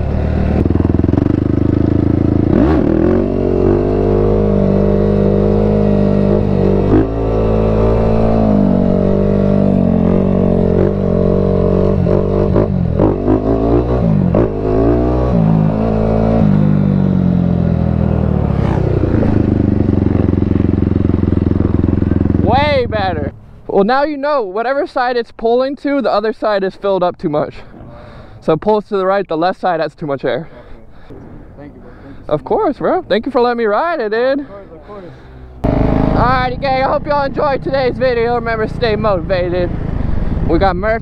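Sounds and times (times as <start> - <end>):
quad bike engine revving: 0.0 - 23.5, 35.0 - 41.0.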